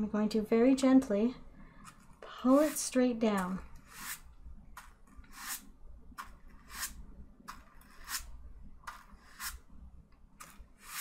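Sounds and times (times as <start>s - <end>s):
painting tool rasping on canvas: 5.3s - 5.7s, 6.6s - 8.3s, 8.9s - 9.6s, 10.4s - 11.0s.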